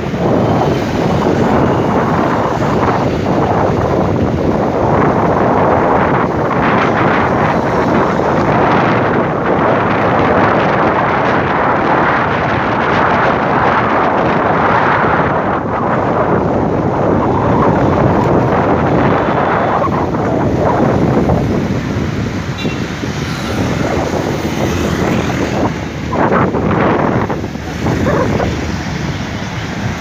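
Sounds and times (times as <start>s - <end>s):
vehicle running and road noise: 0.0s - 30.0s
wind buffeting microphone: 0.0s - 30.0s.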